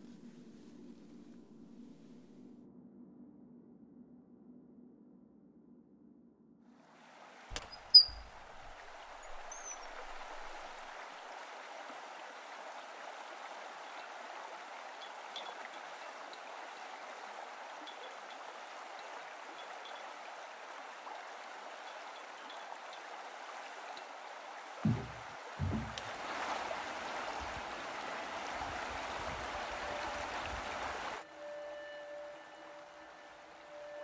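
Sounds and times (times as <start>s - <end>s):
stream rushing: 7.0s - 34.0s.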